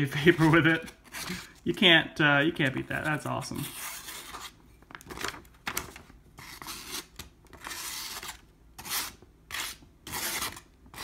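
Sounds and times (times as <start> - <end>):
knife scraping paper edge: 3.5 - 4.6, 6.4 - 11.0.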